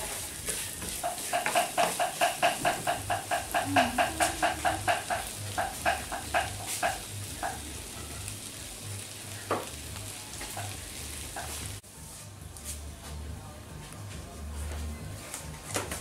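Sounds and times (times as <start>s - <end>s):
food sizzling in a pan: 0.0s - 12.8s.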